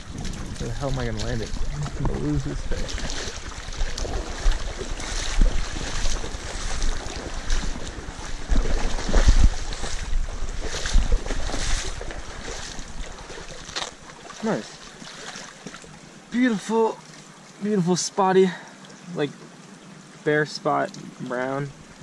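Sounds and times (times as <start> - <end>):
creek water rushing: 0.0 - 22.0
fish splashing at surface: 1.5 - 16.0.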